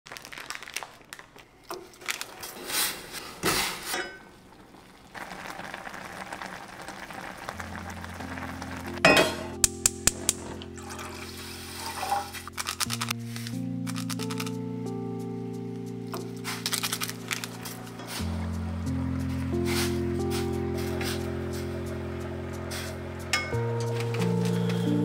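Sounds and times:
plastic packets crinkling: 0.1s - 3.2s, 10.4s - 14.6s, 16.2s - 18.0s
noodles boiling: 0.1s - 13.2s, 16.4s - 25.0s
water poured into saucepan: 4.6s - 8.6s, 10.2s - 12.4s
soft music with held chords: 7.5s - 25.0s
metal pots clattering: 9.0s - 12.5s, 23.4s - 24.2s.

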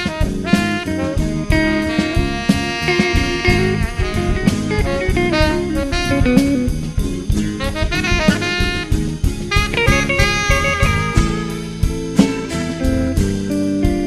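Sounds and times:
drum kit beat: 0.0s - 14.0s
melodic lead line: 0.0s - 14.0s.

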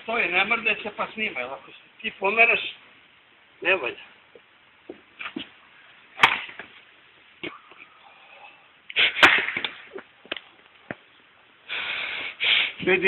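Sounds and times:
axe splitting log: 6.2s - 6.7s.

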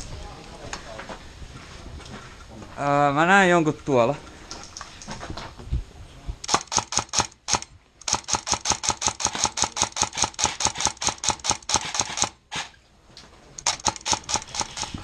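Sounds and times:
airsoft rifle rapid fire: 6.5s - 12.7s, 13.6s - 15.0s.

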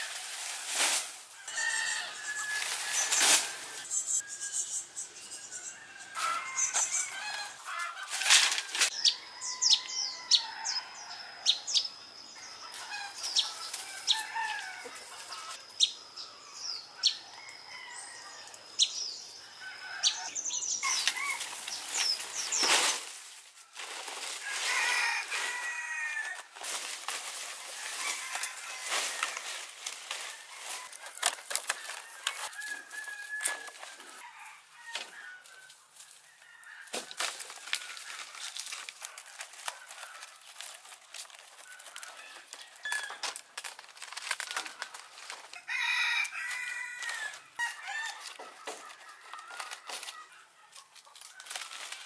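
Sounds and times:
palm fronds rustling and slapping: 0.0s - 3.9s, 6.2s - 9.0s, 20.8s - 34.3s, 34.9s - 52.0s.

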